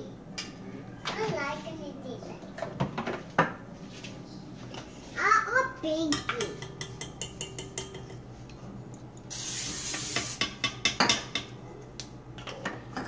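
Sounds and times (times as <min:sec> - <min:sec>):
hiss: 0:09.3 - 0:10.4.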